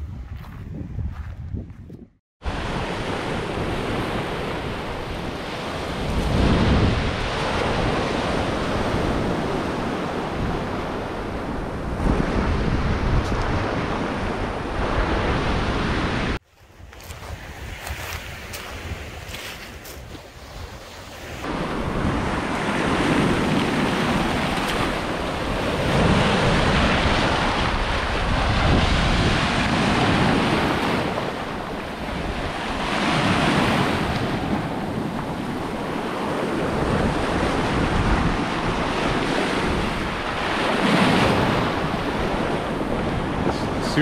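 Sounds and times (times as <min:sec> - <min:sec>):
wind buffeting microphone: 0:00.0 - 0:44.0
sea waves breaking on rocks: 0:17.7 - 0:44.0.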